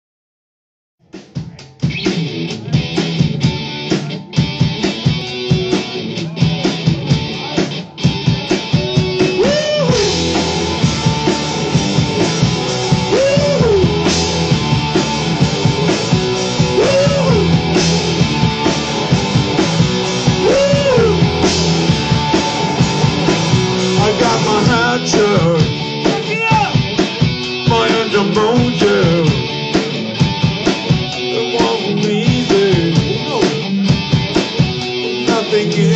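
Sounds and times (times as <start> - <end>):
rock band playing: 1.0 - 35.9
steady drum beat: 1.0 - 35.9
sliding guitar melody: 3.4 - 35.9.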